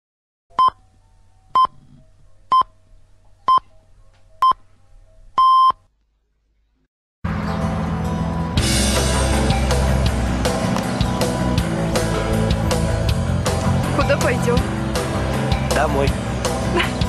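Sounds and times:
electronic time signal beeps: 0:00.5 - 0:00.8, 0:05.4 - 0:05.8.

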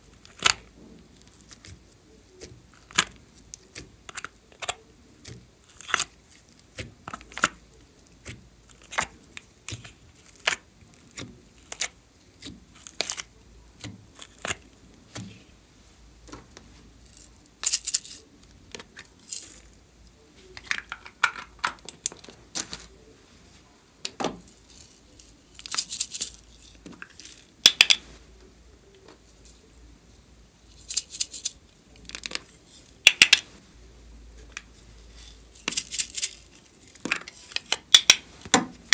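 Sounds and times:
plastic clicks and taps: 0:26.8 - 0:28.1, 0:33.1 - 0:33.5.

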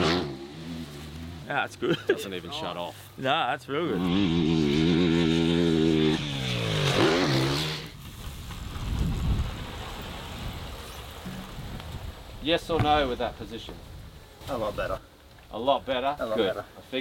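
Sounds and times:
dirt bike engine passing: 0:00.0 - 0:01.7, 0:03.9 - 0:12.2.

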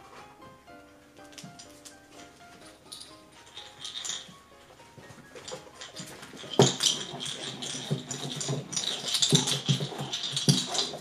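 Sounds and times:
puppies yipping and squealing: 0:05.3 - 0:11.0.

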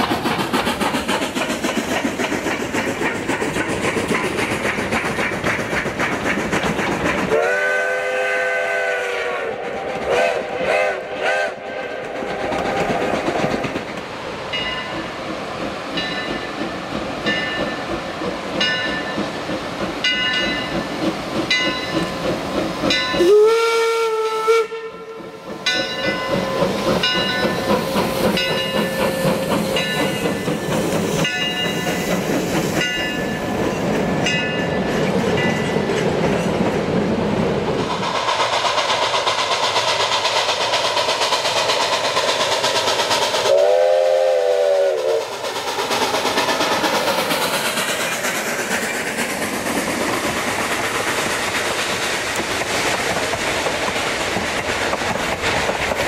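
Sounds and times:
steam locomotive whistle: 0:07.3 - 0:12.3, 0:23.1 - 0:26.8, 0:43.4 - 0:45.4.

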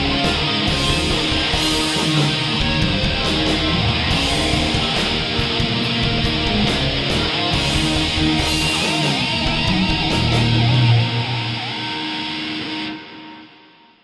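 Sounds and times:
programmed drums: 0:00.0 - 0:11.0
synth bass: 0:00.0 - 0:11.1
electric guitars: 0:00.0 - 0:14.0
held guitar chord: 0:00.0 - 0:14.0
wavering lead guitar note: 0:00.0 - 0:14.0.

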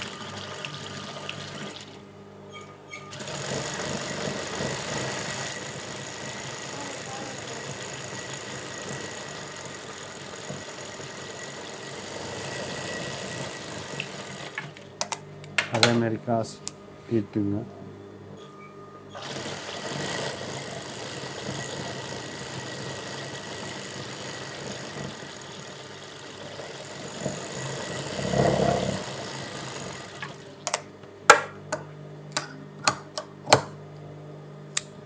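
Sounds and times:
industrial sewing machine running: 0:00.0 - 0:02.0, 0:03.1 - 0:14.9, 0:19.2 - 0:30.6.

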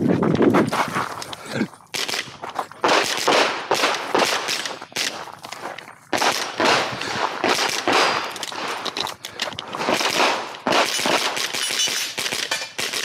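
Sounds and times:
rifle shots with echo: 0:02.0 - 0:05.2, 0:06.1 - 0:08.8, 0:09.8 - 0:13.0.

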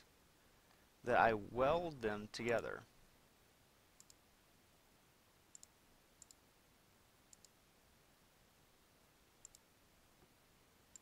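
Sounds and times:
computer mouse clicks: 0:04.0 - 0:04.2, 0:05.5 - 0:06.4, 0:07.3 - 0:07.6, 0:09.4 - 0:09.7.

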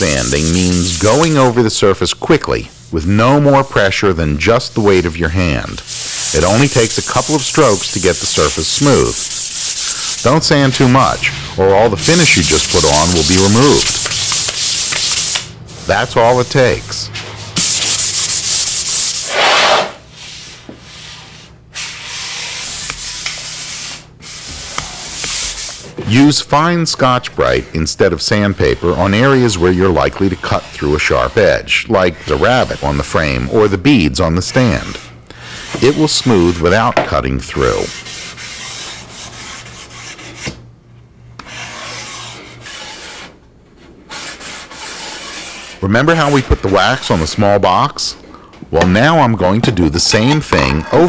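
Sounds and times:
sandpaper rubbing wood: 0:00.0 - 0:01.6, 0:04.4 - 0:17.0, 0:17.6 - 0:25.8, 0:27.3 - 0:33.7, 0:34.5 - 0:36.8, 0:37.5 - 0:40.5, 0:41.4 - 0:43.4, 0:44.1 - 0:47.4.

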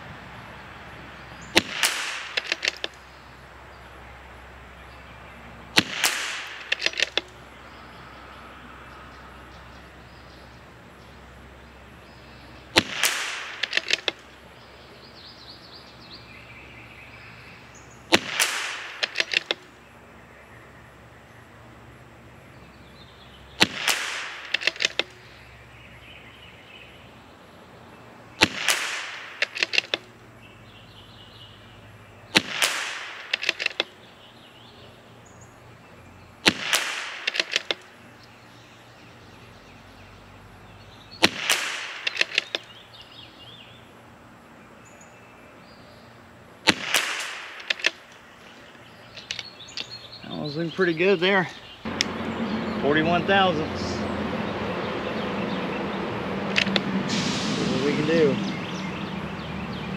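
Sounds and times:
rifle shots: 0:01.5 - 0:03.0, 0:05.7 - 0:07.3, 0:12.7 - 0:14.2, 0:18.1 - 0:19.7, 0:23.6 - 0:25.1, 0:28.4 - 0:30.0, 0:32.3 - 0:33.9, 0:36.4 - 0:37.8, 0:41.2 - 0:42.7, 0:46.6 - 0:48.1
rifle bolt clicking: 0:01.6 - 0:03.0, 0:05.8 - 0:07.3, 0:13.0 - 0:14.2, 0:18.1 - 0:19.7, 0:23.6 - 0:25.1, 0:29.4 - 0:30.0, 0:33.2 - 0:33.9, 0:36.7 - 0:37.8, 0:41.2 - 0:42.7, 0:46.9 - 0:48.1.

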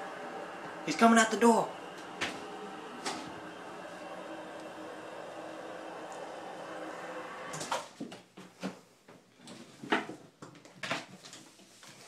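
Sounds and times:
steady hum: 0:00.0 - 0:07.9.

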